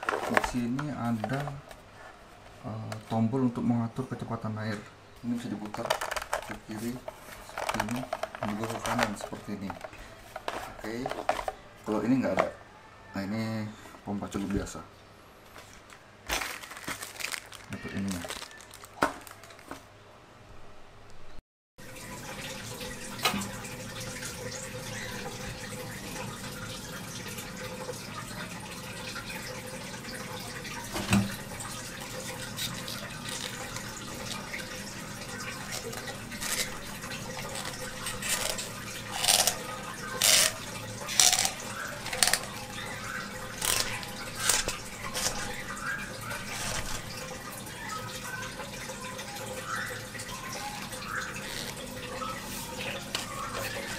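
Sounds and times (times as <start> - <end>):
aquarium water sloshing: 21.8 - 53.9.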